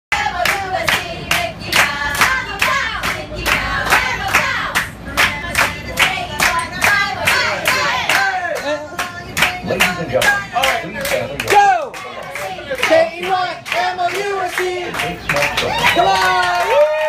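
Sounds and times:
people singing in unison: 0.1 - 11.3
group clapping in rhythm: 0.1 - 17.0.

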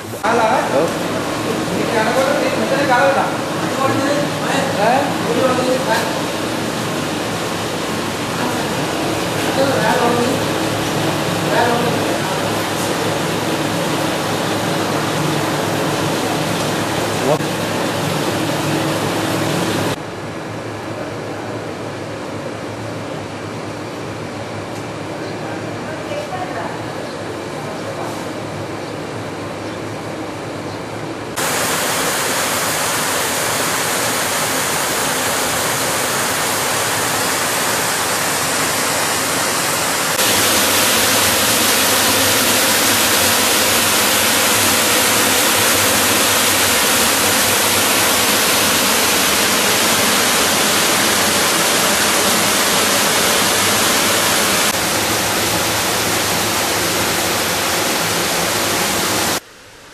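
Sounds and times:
flowing water rushing: 31.4 - 59.4.

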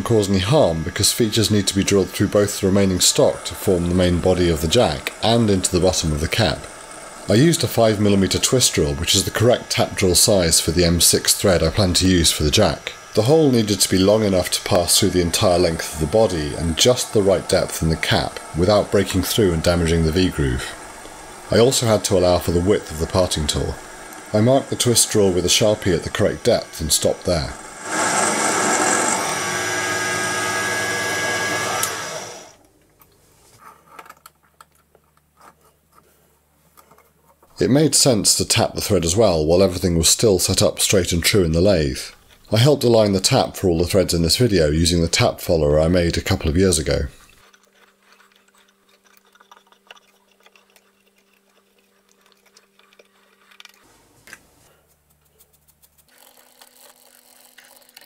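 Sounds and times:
drill cutting metal: 0.0 - 32.6
lathe motor running: 0.0 - 32.6
motor spinning down: 0.0 - 32.6
steady low hum: 0.0 - 32.8.

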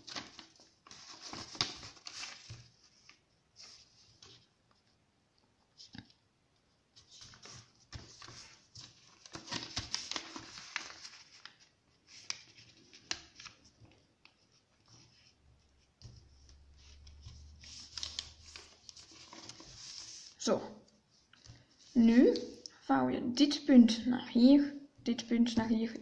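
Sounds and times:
paper rustling and crinkling: 0.0 - 4.9, 6.9 - 22.6.

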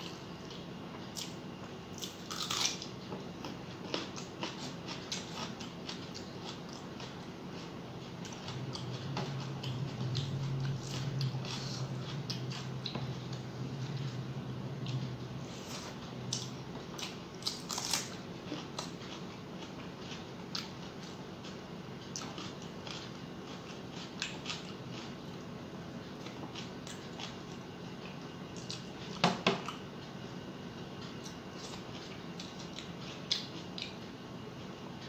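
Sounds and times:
chewing with mouth clicks: 0.4 - 14.2, 14.8 - 25.4, 26.2 - 28.9, 31.0 - 34.1.

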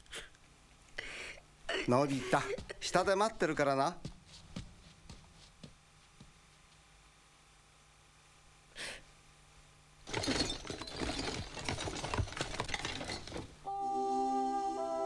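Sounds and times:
toys clattering and rattling: 10.1 - 13.6.

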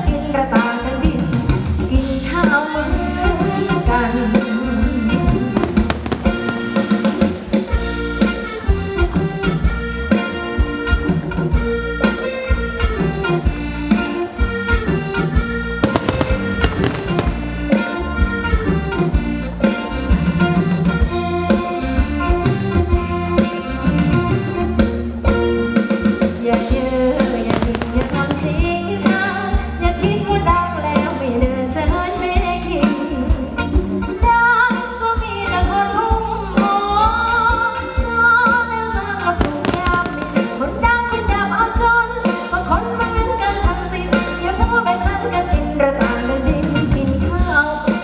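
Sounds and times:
reedy lead melody: 0.0 - 48.0
drum kit beat: 5.0 - 9.6, 13.9 - 21.8, 23.4 - 29.7, 39.3 - 41.5.

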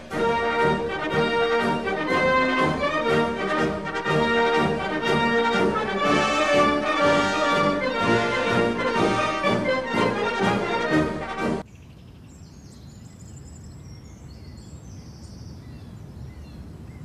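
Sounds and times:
trombones playing sustained notes: 0.0 - 11.6
trumpets playing sustained notes: 0.0 - 11.6.

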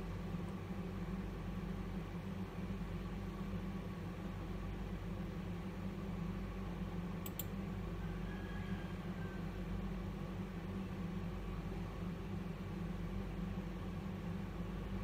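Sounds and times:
room hum and hiss: 0.0 - 15.0
faint clicks: 7.2 - 7.5.

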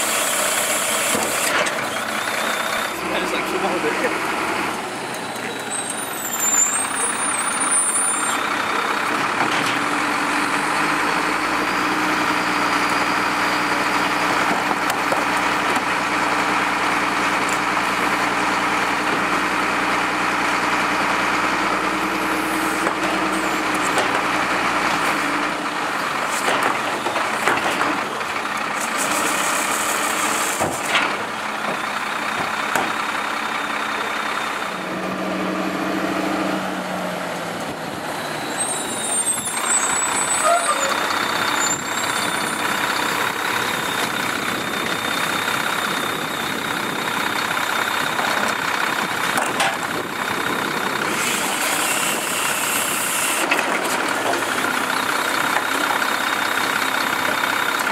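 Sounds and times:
diesel truck engine running: 0.0 - 57.9.

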